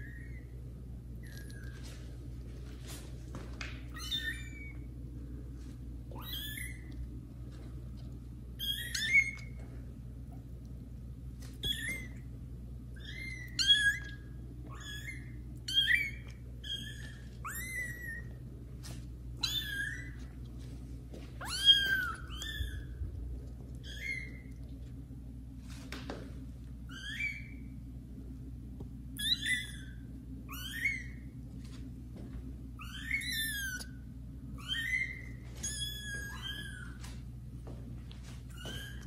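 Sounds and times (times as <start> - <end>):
kitten meowing: 4.0 - 4.9, 6.1 - 7.0, 8.6 - 9.5, 11.6 - 12.2, 13.0 - 18.4, 19.4 - 20.2, 21.4 - 23.0, 29.2 - 31.2, 32.8 - 34.0, 34.6 - 37.0.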